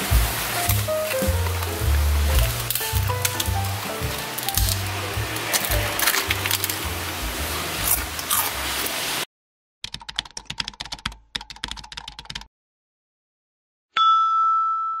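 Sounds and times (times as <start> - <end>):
background music: 0.0 - 8.8
keyboard typing clicks: 9.8 - 12.5
bright chime ringing: 14.0 - 15.0.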